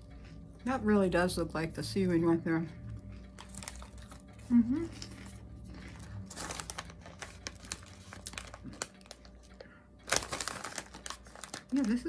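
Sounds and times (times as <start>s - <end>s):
crunchy chips being chewed: 2.9s - 12.0s.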